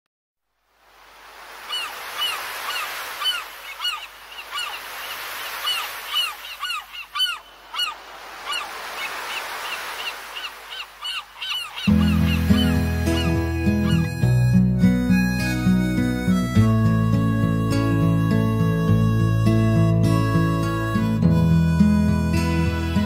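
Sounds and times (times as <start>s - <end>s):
sea rushing noise: 0.6s - 20.7s
seagulls calling: 1.6s - 23.0s
instrumental music: 11.9s - 23.0s.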